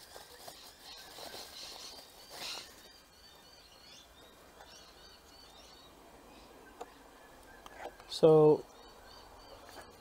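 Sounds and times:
bubble wrap crinkling: 0.0 - 3.0.

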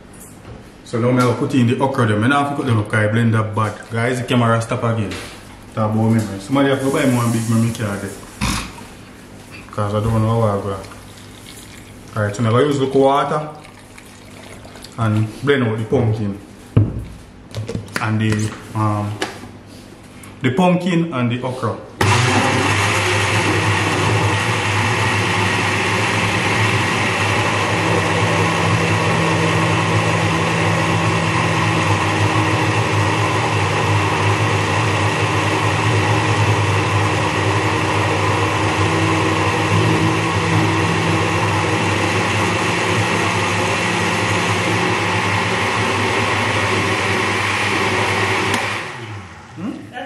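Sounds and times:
blender running: 22.0 - 50.0.

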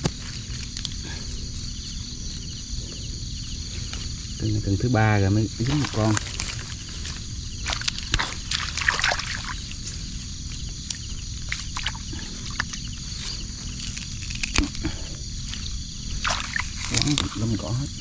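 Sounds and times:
grass stems rustling and crackling: 0.0 - 18.0
insects chirring: 0.0 - 18.0
small water sloshes: 5.6 - 9.9, 11.1 - 12.8, 16.1 - 17.8.

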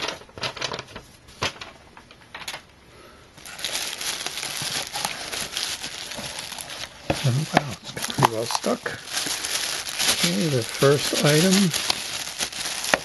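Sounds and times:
plastic wrap crinkling: 3.4 - 13.0.

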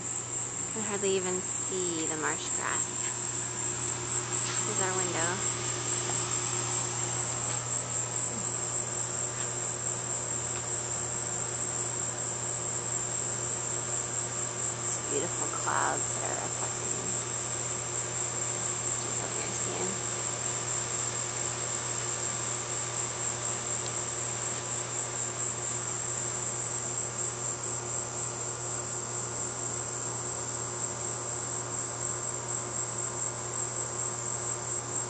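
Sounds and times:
low steady hum: 0.0 - 22.1
insects trilling: 0.0 - 35.0.

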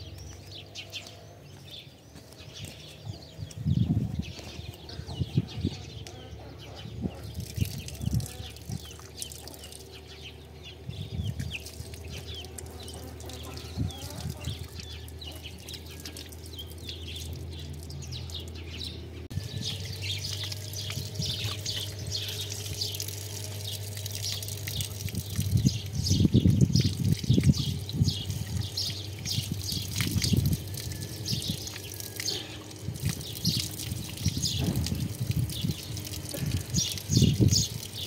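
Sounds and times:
small birds chirping: 0.0 - 38.0
tap water splashing over hands: 7.3 - 10.0, 20.2 - 38.0.

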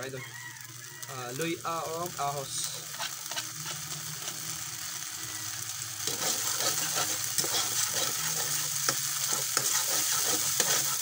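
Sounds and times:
garlic sizzling in oil: 0.0 - 11.0
metal spatula scraping pan: 6.0 - 11.0.

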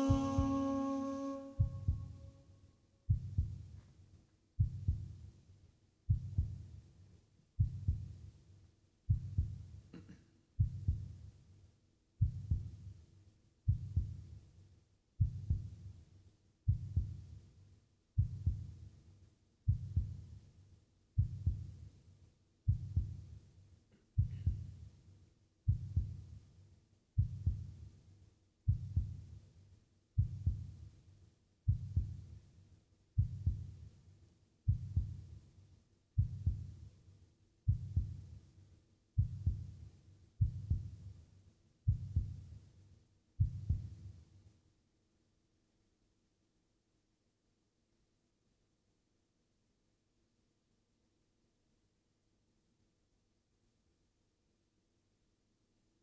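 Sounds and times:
heartbeat-like double thumps: 0.0 - 0.7, 1.6 - 2.2, 3.1 - 3.8, 4.6 - 5.2, 6.1 - 6.6, 7.6 - 8.2, 9.1 - 9.7, 10.6 - 11.2, 12.2 - 12.8, 13.7 - 14.2, 15.2 - 15.8, 16.7 - 17.2, 18.2 - 18.7, 19.7 - 20.2, 21.2 - 21.7, 22.7 - 23.2, 24.2 - 24.7, 25.7 - 26.2, 27.2 - 27.7, 28.7 - 29.2, 30.2 - 30.7, 31.7 - 32.2, 33.2 - 33.7, 34.7 - 35.2, 36.2 - 36.7, 37.7 - 38.2, 39.2 - 39.7, 40.4 - 41.0, 41.9 - 42.4, 43.4 - 43.9.

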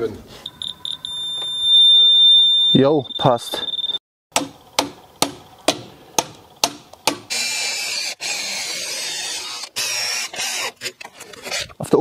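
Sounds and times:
hammer striking steel stake: 4.3 - 7.3
cordless drill driving screw: 7.3 - 11.7.

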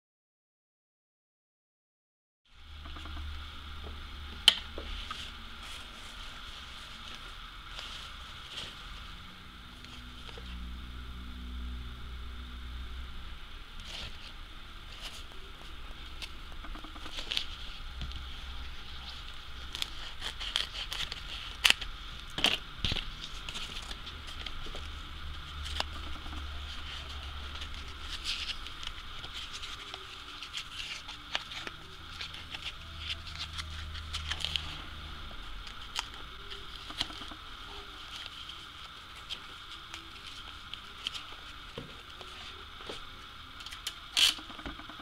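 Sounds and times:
paper rustling and crinkling: 16.9 - 25.0, 25.6 - 43.0.

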